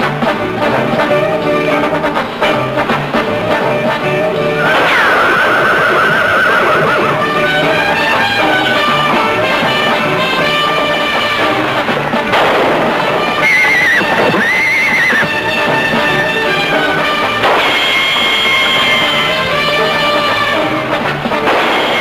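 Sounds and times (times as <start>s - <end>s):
dramatic orchestral music: 0.0s - 22.0s
horse whinnying: 4.4s - 8.9s, 13.2s - 20.8s
sudden noisy burst: 4.6s - 7.5s, 12.2s - 19.4s.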